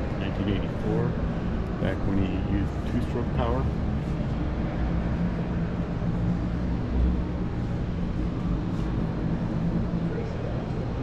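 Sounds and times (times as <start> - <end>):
indoor hall rumble: 0.0 - 11.0.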